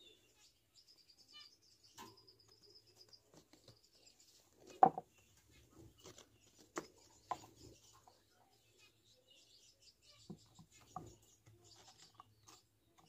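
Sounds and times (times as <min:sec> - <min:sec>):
faint high chirping trill: 0:00.0 - 0:04.4
mug knocking on wooden shelf: 0:04.8 - 0:05.0.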